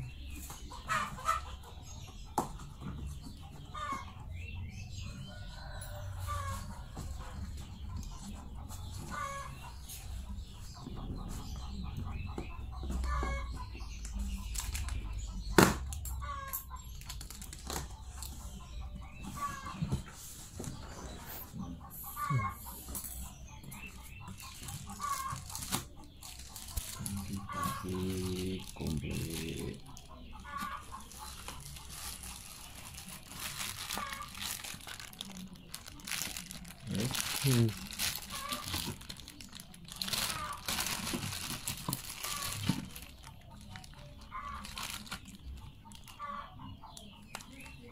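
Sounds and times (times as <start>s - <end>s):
short bird calls: 21.2s - 23.3s
plastic packaging crinkling: 24.4s - 46.0s.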